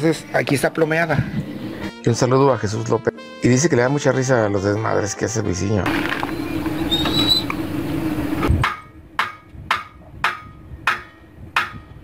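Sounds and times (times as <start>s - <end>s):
steady low hum: 5.9s - 12.0s.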